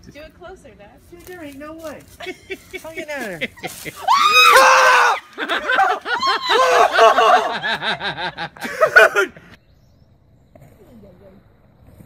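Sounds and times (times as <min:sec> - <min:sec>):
person laughing hard: 0:02.2 - 0:09.5
loud pitched cry: 0:04.0 - 0:07.6.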